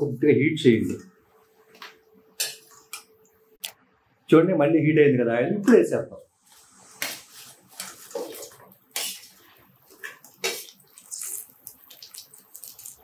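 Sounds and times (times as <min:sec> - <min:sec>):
oil sizzling: 0:06.5 - 0:13.0
fritters splashing into hot oil: 0:10.0 - 0:13.0.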